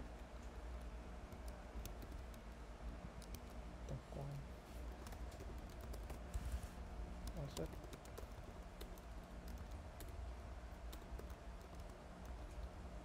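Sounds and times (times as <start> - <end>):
low steady hum: 0.0 - 13.0
computer keyboard typing: 0.1 - 2.5, 3.2 - 3.6, 4.9 - 6.4, 7.2 - 12.8.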